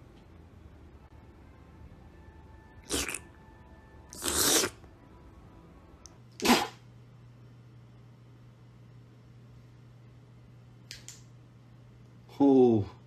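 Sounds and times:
person sneezing: 0:06.4 - 0:06.8.

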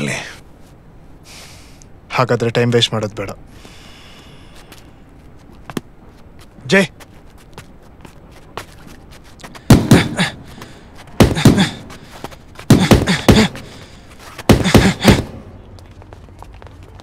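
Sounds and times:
gloves striking focus mitts: 0:09.6 - 0:10.3, 0:11.2 - 0:12.0, 0:12.6 - 0:13.8, 0:14.4 - 0:15.4.

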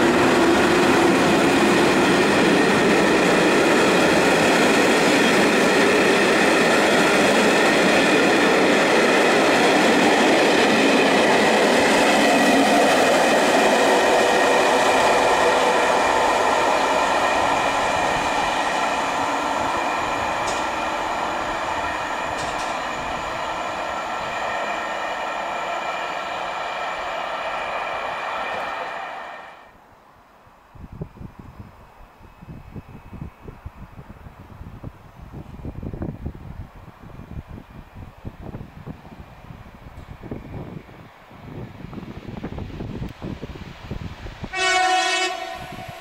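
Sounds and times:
train coaches rolling on rails: 0:00.0 - 0:29.5.

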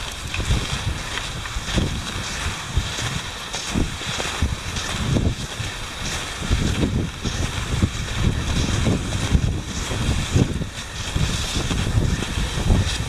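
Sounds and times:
ski poles planting in snow: 0:00.0 - 0:13.0
skis swishing on snow: 0:00.0 - 0:13.0
wind on microphone: 0:00.0 - 0:13.0.

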